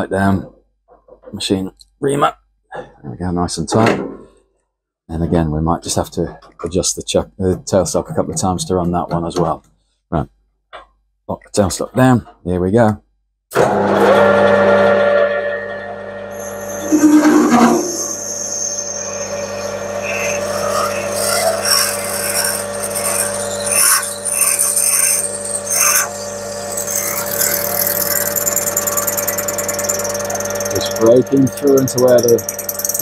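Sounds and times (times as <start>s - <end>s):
metal lathe humming: 13.6s - 33.0s
loud squeak: 13.9s - 33.0s
drill cutting hiss and chatter: 18.5s - 33.0s.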